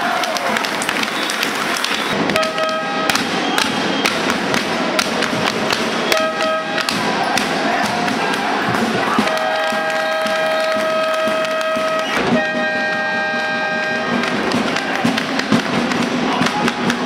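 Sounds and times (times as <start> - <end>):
crowd noise: 0.0 - 17.0
horn tone: 1.9 - 4.1, 6.0 - 7.0, 9.1 - 15.0.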